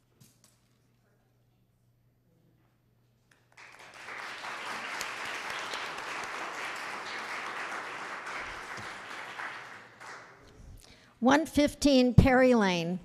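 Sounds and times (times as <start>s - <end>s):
audience applauding: 3.5s - 10.6s.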